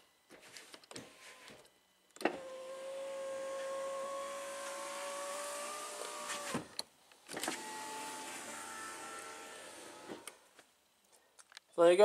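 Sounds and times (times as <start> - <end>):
power window motor running: 2.2 - 6.7, 7.4 - 10.4.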